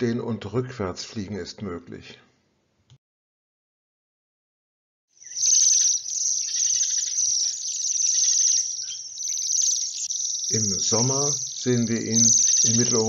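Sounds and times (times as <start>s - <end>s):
bird trilling calls: 5.2s - 13.0s.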